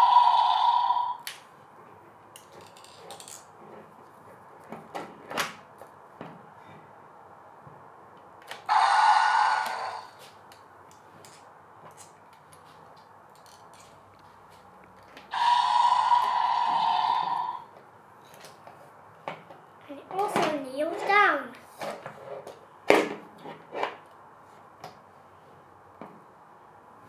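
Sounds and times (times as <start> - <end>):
plastic toy joints clicking: 2.4 - 3.5
loud rasping burst: 8.7 - 10.2, 15.3 - 17.6.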